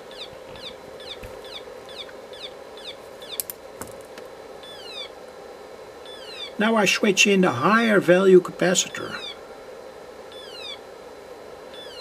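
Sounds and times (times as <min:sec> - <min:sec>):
electronic siren chirps: 0:00.0 - 0:03.4, 0:04.6 - 0:05.2, 0:06.0 - 0:06.6, 0:09.0 - 0:09.4, 0:10.3 - 0:10.9, 0:11.7 - 0:12.0.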